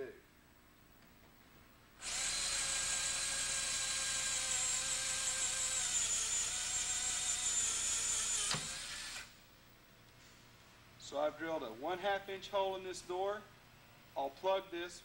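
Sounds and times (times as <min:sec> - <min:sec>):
electric drill cutting sheet metal: 0:02.0 - 0:09.4.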